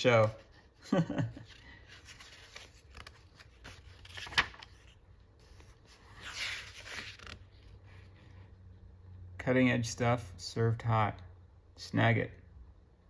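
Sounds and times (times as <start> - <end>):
magazine pages rustling: 1.2 - 7.9.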